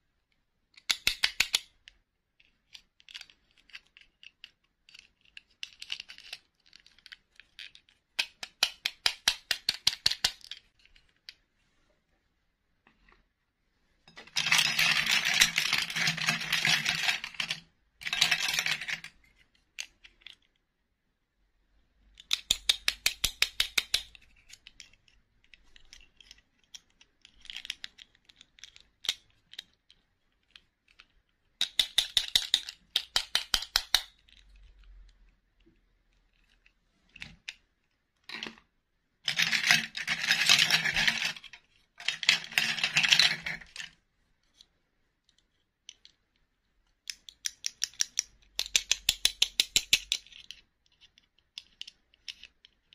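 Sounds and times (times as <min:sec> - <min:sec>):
plastic toys clicking: 0:00.7 - 0:11.4, 0:14.1 - 0:20.6, 0:22.2 - 0:38.7, 0:39.3 - 0:52.9
plastic toys rustling: 0:14.1 - 0:20.5, 0:34.2 - 0:46.2.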